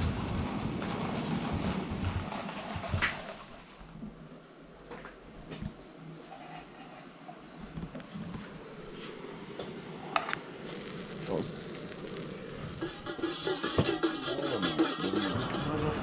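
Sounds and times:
crickets chirping: 0.0s - 16.0s
kitchenware clink: 12.8s - 15.8s.

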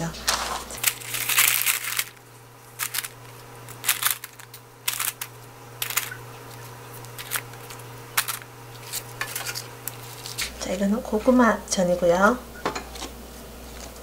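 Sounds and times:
parchment paper rustling: 0.1s - 10.6s.

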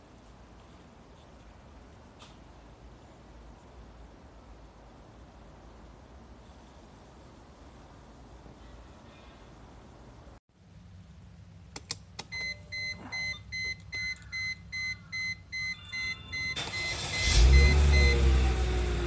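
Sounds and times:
ignition key clicks: 11.7s - 12.6s
dashboard warning chime beeping: 12.2s - 18.3s
car engine fast idle: 16.6s - 19.0s.

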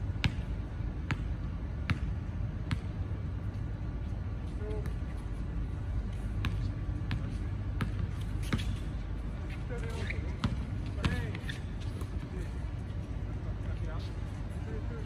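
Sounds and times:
basketball bouncing on hard court: 0.1s - 3.0s, 6.4s - 8.8s, 9.9s - 12.1s.

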